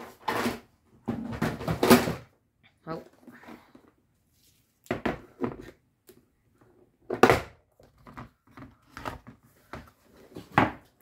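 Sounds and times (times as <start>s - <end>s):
plastic case clacks and rattles: 7.0s - 10.8s.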